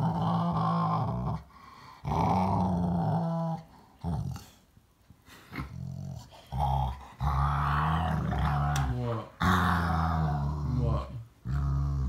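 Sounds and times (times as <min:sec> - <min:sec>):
dog rumbling grumble: 0:05.6 - 0:12.0.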